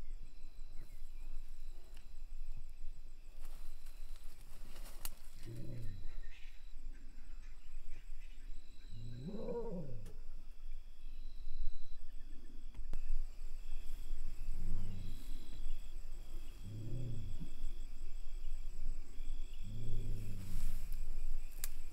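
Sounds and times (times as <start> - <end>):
lioness moaning calls: 5.4 - 6.4, 8.8 - 10.4, 14.3 - 17.9, 19.4 - 21.0.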